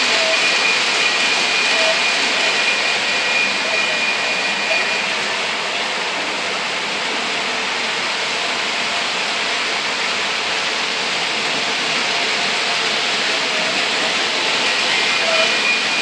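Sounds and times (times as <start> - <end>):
model trains rolling rumble: 0.0 - 16.0.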